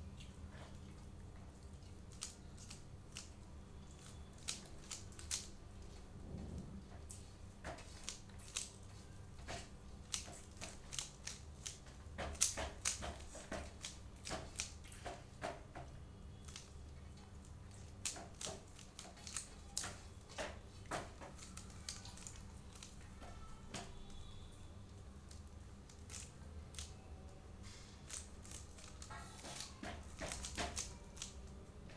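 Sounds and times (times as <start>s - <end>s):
puzzle cube clicking: 10.1s - 14.8s, 25.9s - 26.9s, 28.1s - 31.4s.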